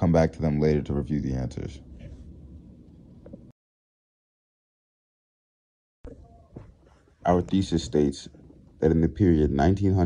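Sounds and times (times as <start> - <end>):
low hiss: 6.1 - 10.0.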